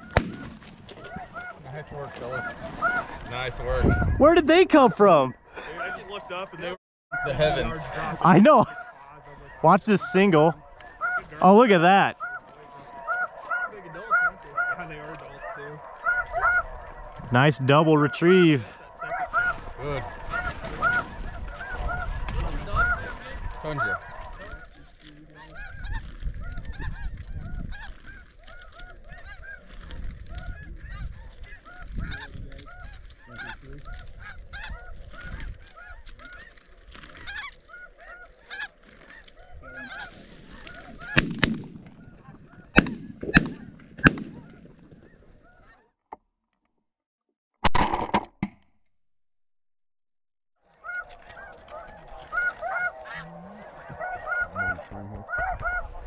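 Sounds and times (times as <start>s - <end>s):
shotgun shots: 0.0s - 0.8s, 41.1s - 42.0s, 42.8s - 45.0s
geese honking: 0.0s - 45.9s, 50.7s - 56.0s.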